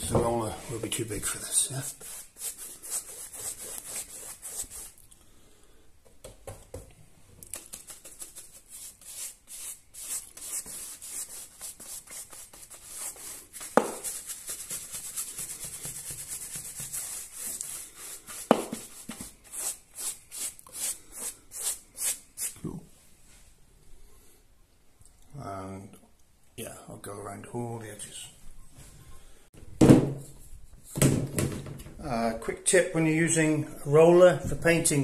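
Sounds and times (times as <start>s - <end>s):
paintbrush strokes on wall: 0.0s - 5.0s, 7.6s - 22.6s.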